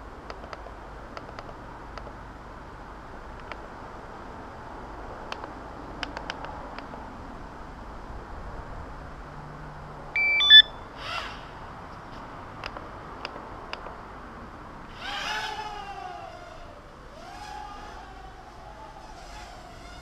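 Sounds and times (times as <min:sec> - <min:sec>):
light clicks: 0:05.3 - 0:06.9
radio transmitter beeping tune: 0:10.2 - 0:10.8.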